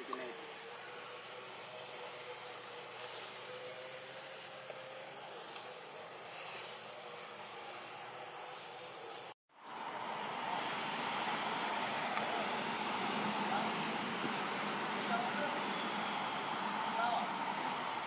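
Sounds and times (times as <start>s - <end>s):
high-pitched insect drone: 0.0s - 9.4s, 15.2s - 17.7s
forest background hiss: 0.0s - 18.0s.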